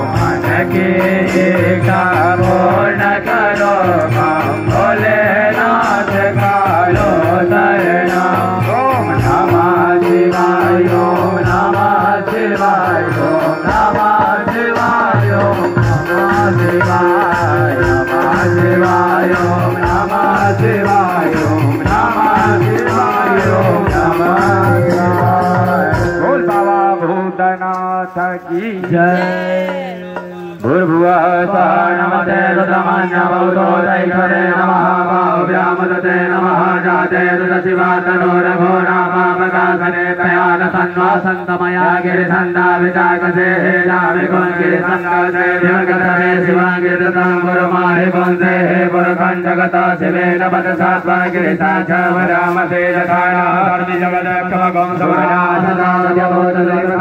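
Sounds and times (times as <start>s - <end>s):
group chanting over loudspeaker: 28.4s - 57.0s.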